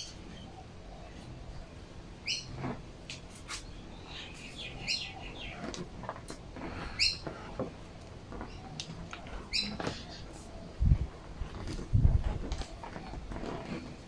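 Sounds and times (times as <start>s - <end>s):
small bird chirping: 2.2s - 2.6s, 3.2s - 5.9s, 6.9s - 7.2s, 8.4s - 10.6s
hands clicking and rustling: 5.5s - 14.0s.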